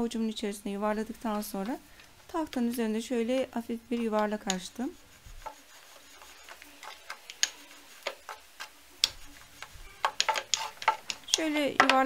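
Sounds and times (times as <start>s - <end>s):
rolling pin on wooden board: 3.4s - 12.0s.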